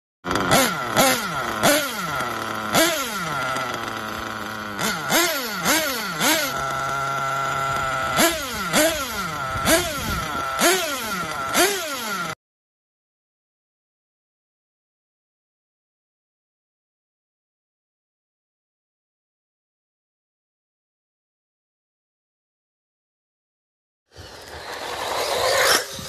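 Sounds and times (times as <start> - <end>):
model engine idling and revving: 0.2 - 12.4, 24.2 - 26.0.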